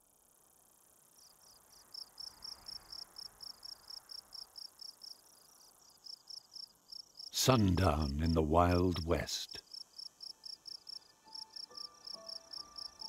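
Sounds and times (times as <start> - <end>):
cricket chirping: 0.0 - 13.0.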